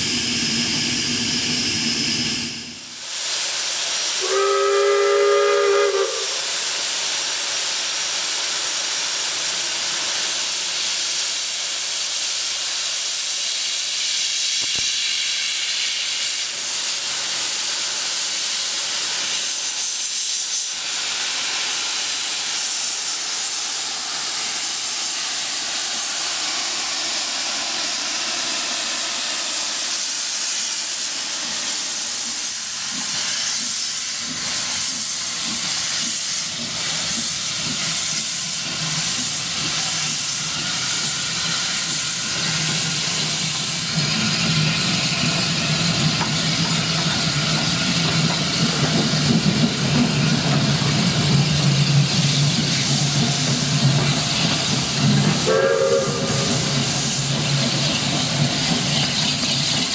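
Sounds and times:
loud hiss of steam: 0.0s - 59.9s
steam locomotive whistle: 4.2s - 6.5s, 55.4s - 57.2s.

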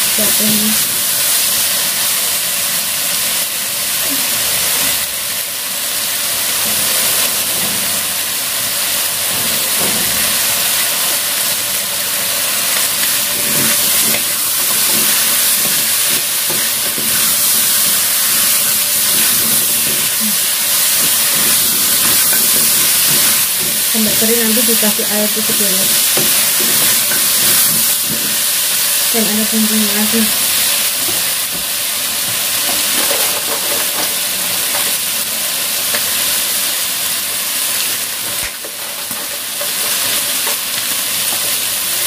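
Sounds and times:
food sizzling in a wok: 0.0s - 42.0s
food being stirred: 12.4s - 35.0s.

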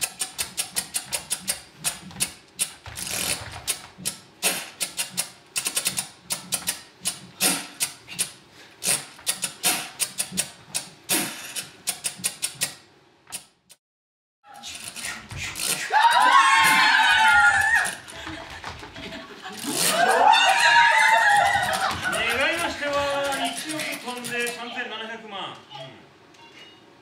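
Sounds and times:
tap dancing on stage floor: 16.7s - 19.1s, 21.2s - 23.5s.

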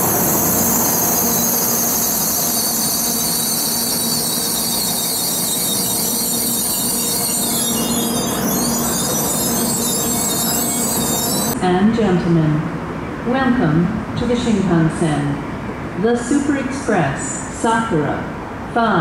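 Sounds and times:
high-pitched squealing: 0.0s - 11.6s
train rushing past: 0.0s - 11.6s.

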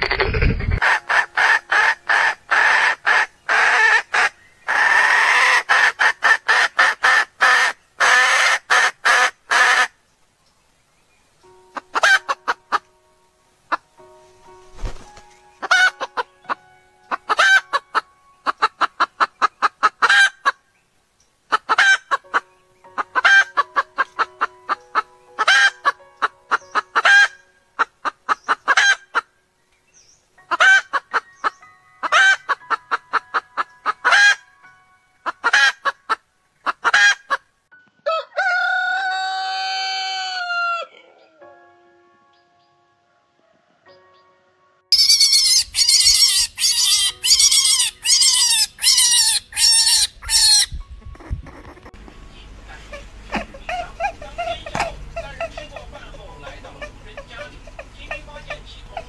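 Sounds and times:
hen clucking: 0.0s - 9.9s, 11.7s - 12.9s, 15.6s - 20.6s, 21.5s - 29.3s, 30.5s - 34.4s, 35.2s - 37.5s, 44.9s - 59.0s
rooster crowing: 38.0s - 41.4s.

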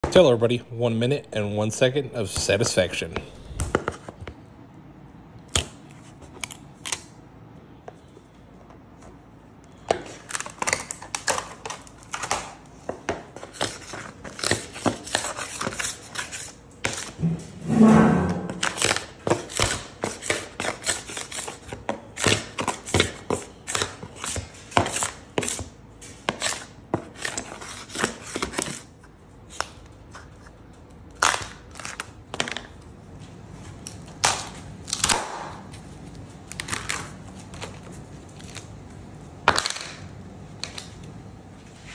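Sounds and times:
steel scraper scraping worktable: 17.2s - 19.0s.

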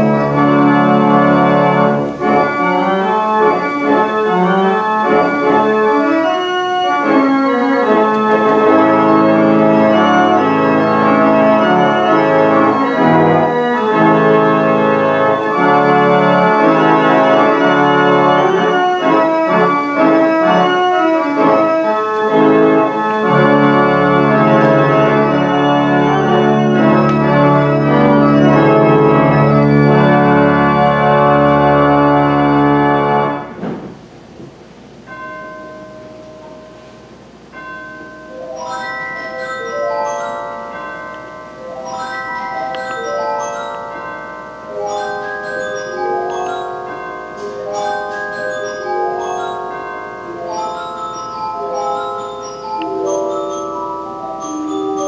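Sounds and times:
deep organ pedal bass notes: 0.0s - 33.5s
pipe organ chords: 0.0s - 33.6s, 34.2s - 55.0s.

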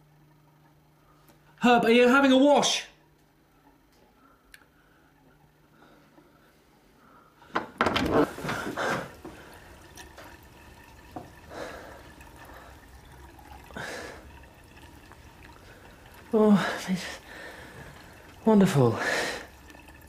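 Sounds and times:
water splashing: 8.1s - 20.0s.

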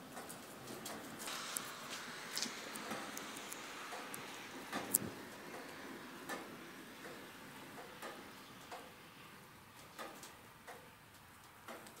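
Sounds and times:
low steady hiss: 0.0s - 12.0s
faint ticks: 9.8s - 12.0s.

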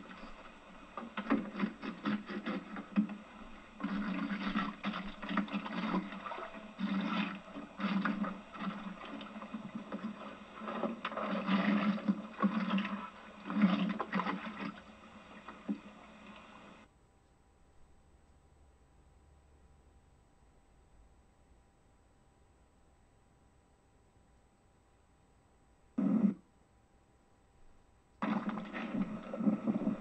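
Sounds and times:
water splashing: 0.0s - 16.8s, 28.2s - 30.0s.

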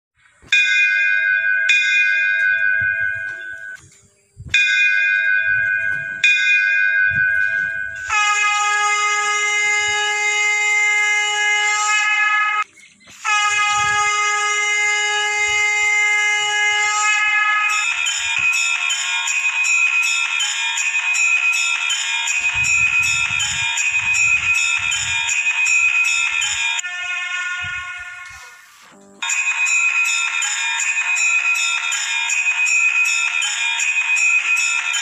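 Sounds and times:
small bells jingling: 0.5s - 4.0s, 17.7s - 26.8s, 29.2s - 35.0s
temple bell ringing: 0.5s - 12.6s, 13.4s - 26.8s, 29.2s - 35.0s
conch shell blasts: 8.0s - 12.6s, 13.2s - 17.9s.

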